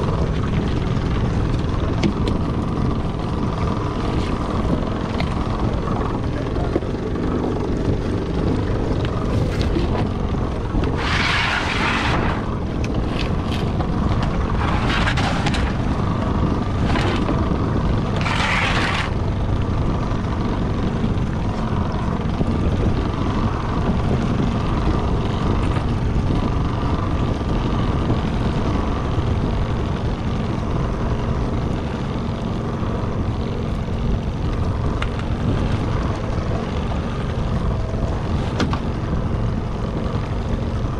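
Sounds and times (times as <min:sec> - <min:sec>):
boat motor rumbling: 0:00.0 - 0:40.9
wind on microphone: 0:00.0 - 0:40.9.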